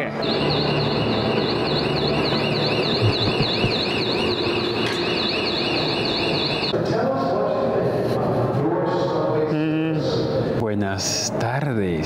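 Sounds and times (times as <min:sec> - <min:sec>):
station noise: 0:00.0 - 0:06.8
warbling alarm tone: 0:00.0 - 0:06.8.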